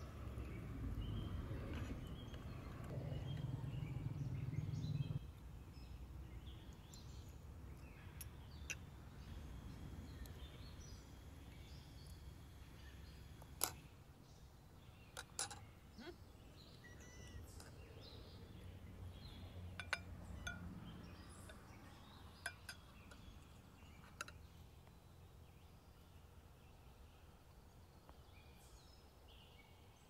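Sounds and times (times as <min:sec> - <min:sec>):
low rumble: 0:00.0 - 0:05.4
faint bird chirps: 0:00.4 - 0:30.0.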